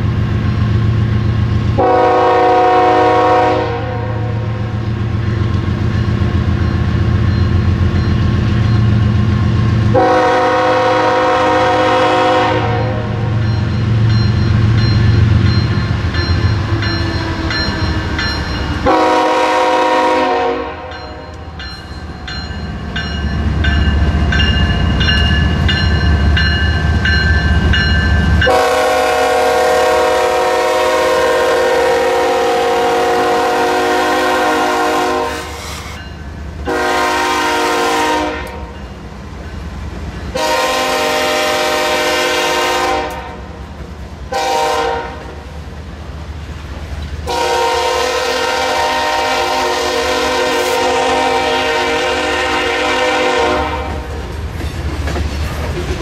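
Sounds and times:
freight cars rumbling over rails: 0.0 - 56.0
locomotive air horn blasts: 1.8 - 4.6, 9.9 - 13.3, 18.8 - 21.2, 28.5 - 35.7, 36.7 - 38.7, 40.4 - 43.5, 44.3 - 45.4, 47.2 - 54.1.

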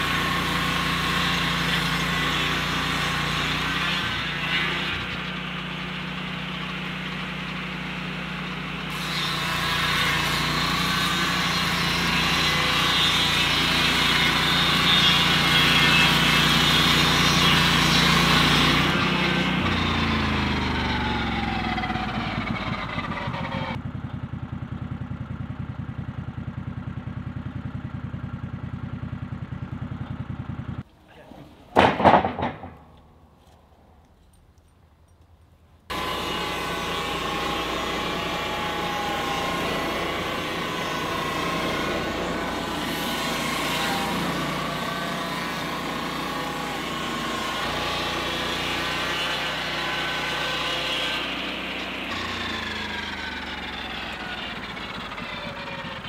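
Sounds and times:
sawmill engine and blade cutting: 0.0 - 25.2, 35.9 - 56.0.

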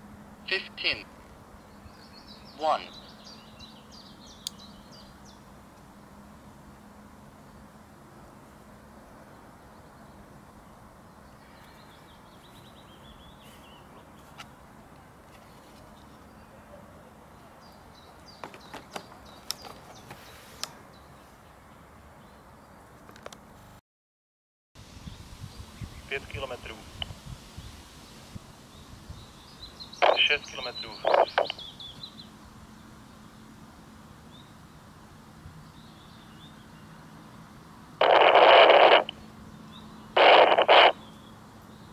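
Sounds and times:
walkie-talkie static hiss: 0.4 - 1.2, 2.6 - 3.0, 26.0 - 27.2, 29.9 - 32.0, 38.0 - 39.4, 40.1 - 41.2
plastic clicks and knocks: 18.4 - 19.8.

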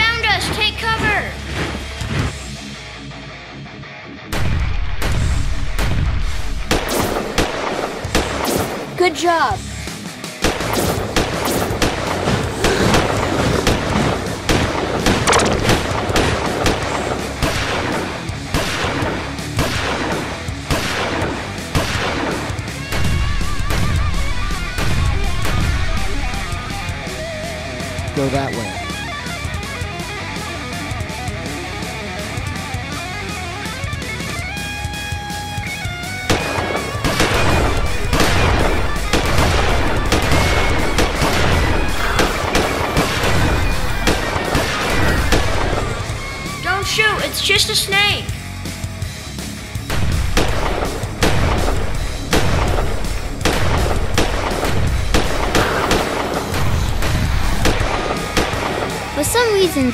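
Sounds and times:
dramatic background music: 0.0 - 59.9
gunfire sound effects: 4.3 - 9.0, 10.4 - 25.9, 36.3 - 46.1, 49.9 - 59.9.

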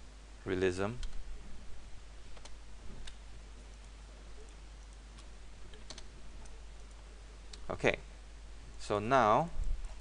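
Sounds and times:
low hum and hiss: 0.0 - 10.0.

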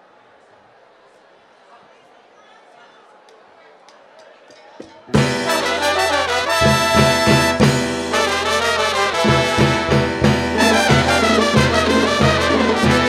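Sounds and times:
salsa band playing: 5.1 - 13.0
trumpets and trombones: 5.2 - 13.0.

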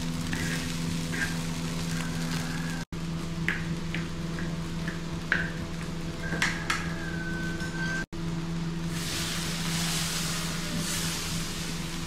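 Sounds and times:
pots and utensils clinking: 6.2 - 8.1.

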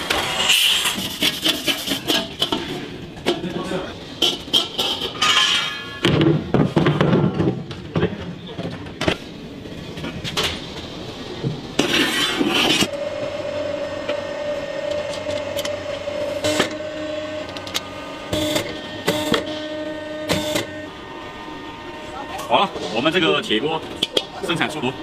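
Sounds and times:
metal woks clanking: 4.2 - 6.0.

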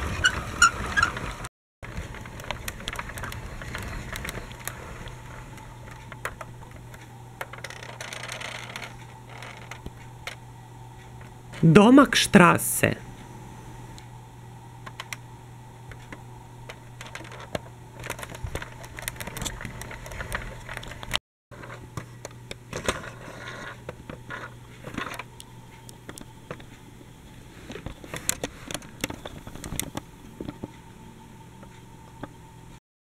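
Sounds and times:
steady low hum: 0.0 - 32.8.

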